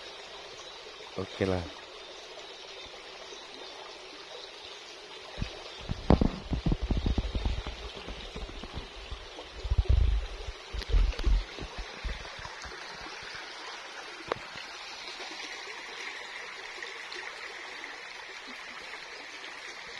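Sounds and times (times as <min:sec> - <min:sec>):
river water babbling over stones: 0:00.0 - 0:19.9
low thumps on microphone: 0:05.4 - 0:12.5.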